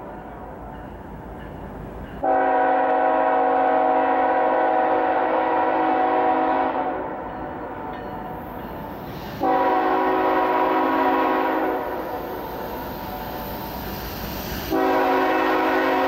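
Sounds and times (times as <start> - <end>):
locomotive air horn chord: 2.2 - 8.0, 8.8 - 13.4, 14.7 - 16.0.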